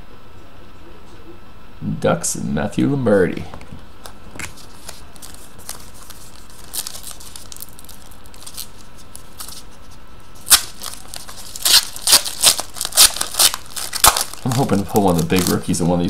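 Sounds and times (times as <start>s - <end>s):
foil wrapper crinkling: 4.3s - 16.0s.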